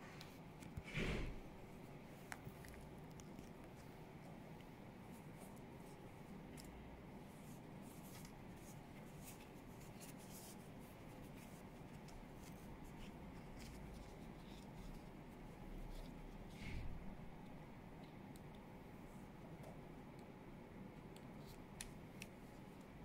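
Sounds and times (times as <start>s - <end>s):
low room hum: 0.0s - 23.0s
fabric rustling and rubbing: 0.8s - 2.5s.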